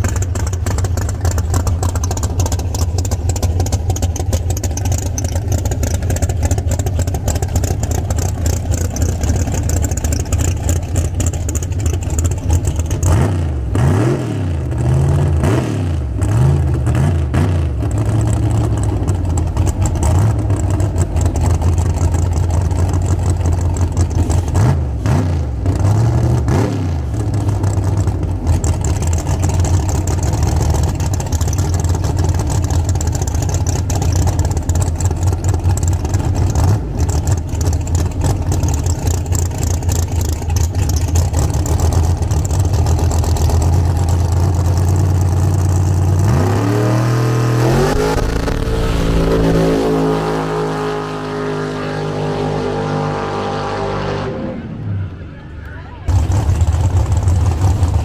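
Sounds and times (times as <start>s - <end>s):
race car engines revving: 0.0s - 58.0s
car accelerating away: 0.1s - 58.0s.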